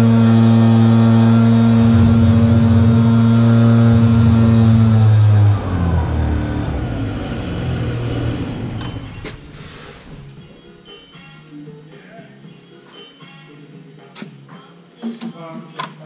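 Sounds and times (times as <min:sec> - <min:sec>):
tractor diesel engine running: 0:00.0 - 0:10.8.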